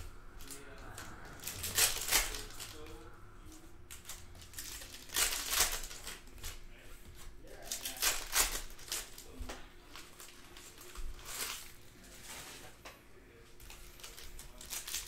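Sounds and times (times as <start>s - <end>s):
foil wrappers crinkling and tearing: 0.4s - 3.0s, 3.9s - 12.8s, 13.6s - 15.0s.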